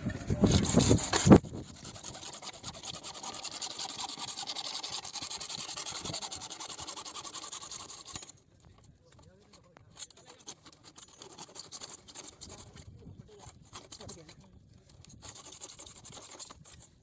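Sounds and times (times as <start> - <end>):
hacksaw sawing plastic pipe: 0.4 - 8.4, 9.9 - 16.9.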